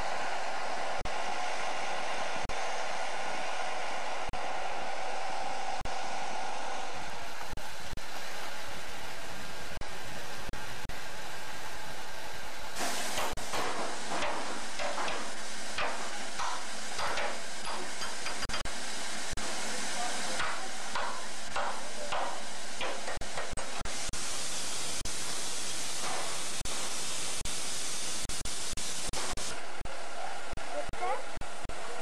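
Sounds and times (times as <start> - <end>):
steam locomotive hissing: 12.5 - 30.8.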